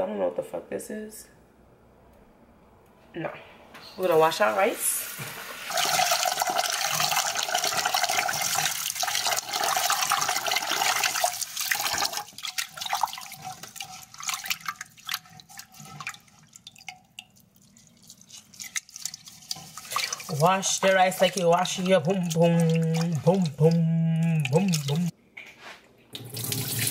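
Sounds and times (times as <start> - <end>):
tap water running into pot: 5.0 - 25.1, 26.2 - 26.9
hand swishing rice in water: 17.6 - 25.1.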